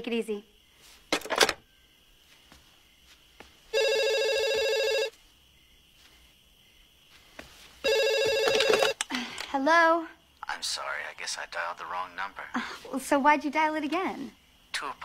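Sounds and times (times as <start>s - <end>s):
telephone ringing: 3.7s - 5.2s, 7.8s - 9.0s.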